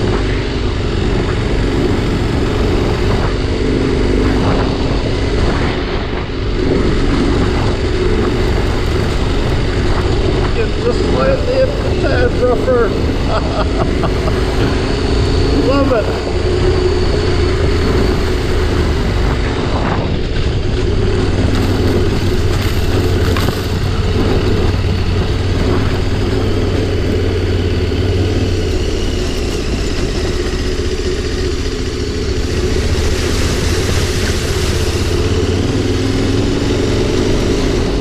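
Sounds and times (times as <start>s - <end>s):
motorcycle engine running: 0.0s - 38.0s.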